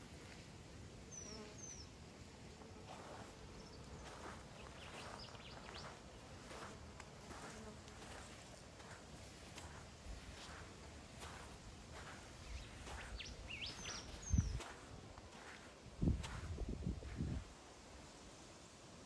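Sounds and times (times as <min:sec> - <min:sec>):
footsteps on sandy ground: 0:00.0 - 0:17.6
insects buzzing: 0:00.9 - 0:15.7.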